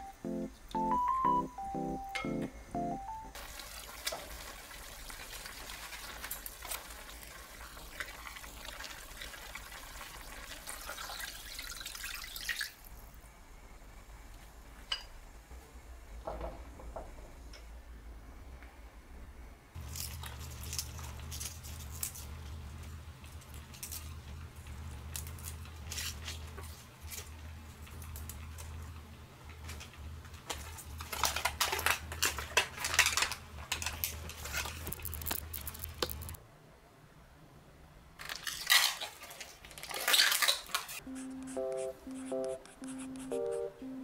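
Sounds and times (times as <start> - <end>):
steady low hum: 0.0 - 3.4
plastic film crinkling: 30.4 - 36.4, 38.2 - 41.0
leafy vegetable snapping apart: 38.2 - 41.0.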